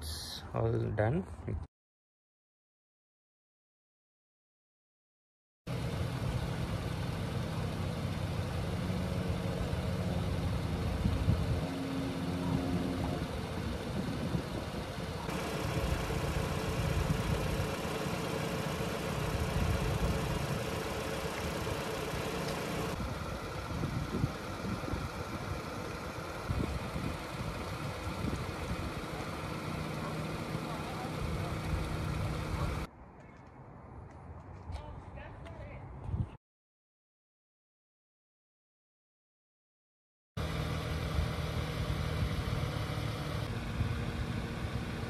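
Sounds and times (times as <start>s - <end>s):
car engine idling: 5.7s - 32.9s.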